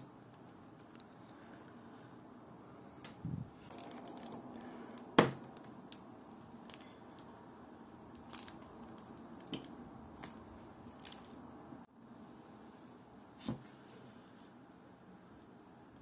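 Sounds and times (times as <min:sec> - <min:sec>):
plastic bag rustling: 0:03.5 - 0:04.8, 0:08.0 - 0:11.4.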